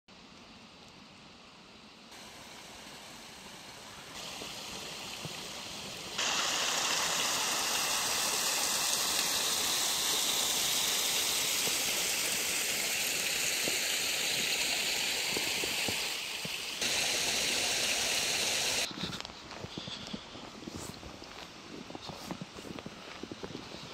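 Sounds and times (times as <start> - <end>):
stream water rushing: 2.2 - 18.9.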